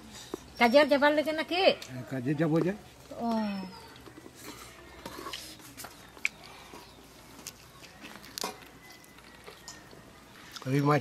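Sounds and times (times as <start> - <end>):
chewing and mouth sounds: 5.3 - 10.8.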